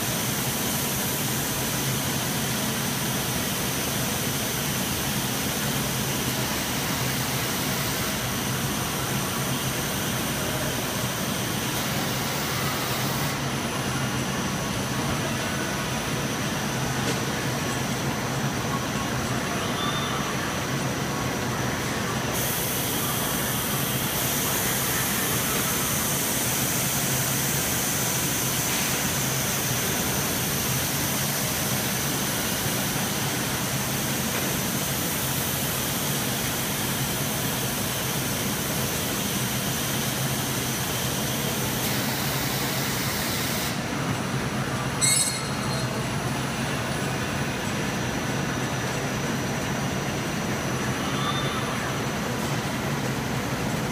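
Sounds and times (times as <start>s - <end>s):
sharp metal clank: 45.0s - 46.0s.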